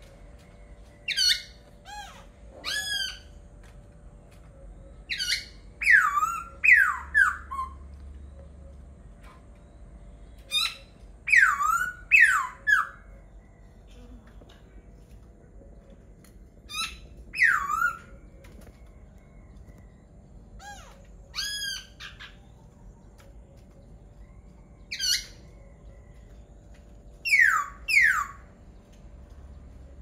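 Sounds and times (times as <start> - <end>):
bird singing whistled phrases: 10.5 - 13.0, 16.7 - 18.1, 27.2 - 28.5.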